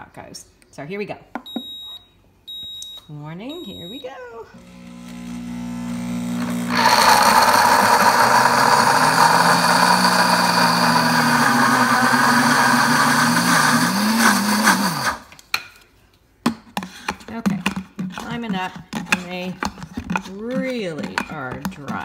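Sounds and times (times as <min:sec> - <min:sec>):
blender grinding nuts: 0:04.6 - 0:15.3.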